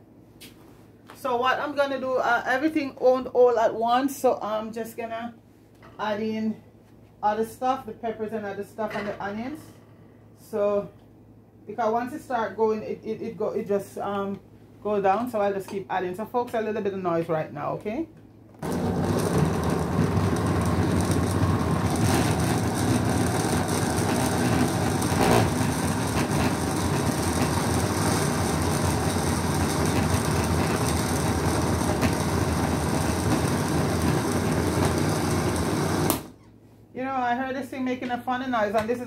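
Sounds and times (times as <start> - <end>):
blender running: 18.6 - 36.4.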